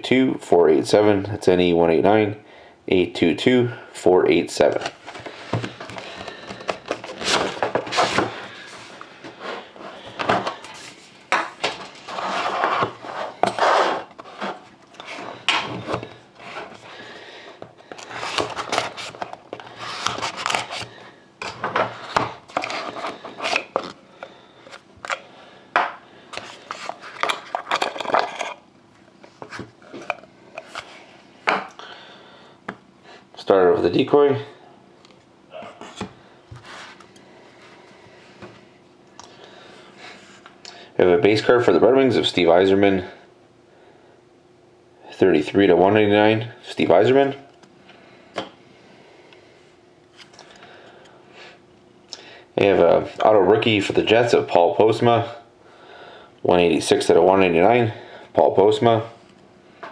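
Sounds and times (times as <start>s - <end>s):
hands handling cardboard packaging: 4.7s - 16.8s, 17.6s - 24.0s.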